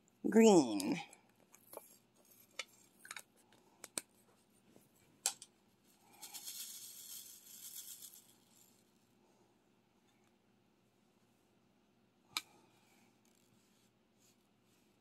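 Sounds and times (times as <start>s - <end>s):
soft rattling rustle: 5.8s - 9.1s.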